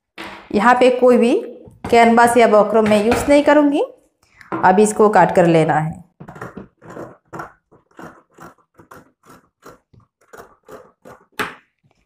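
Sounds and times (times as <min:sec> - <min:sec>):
scissors snipping fabric: 0:06.9 - 0:11.4.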